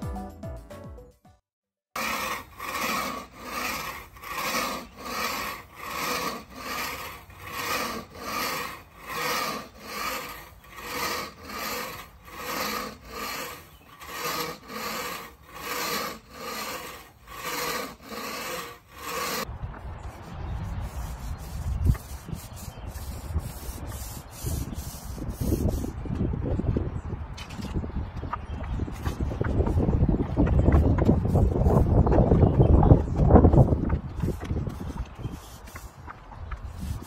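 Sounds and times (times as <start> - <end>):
floor scraper scraping concrete: 2.0 - 19.5.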